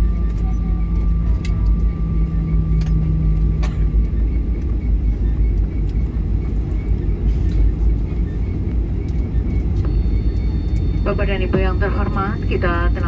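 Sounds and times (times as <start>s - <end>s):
airliner engines and wheels roaring: 0.0s - 13.0s.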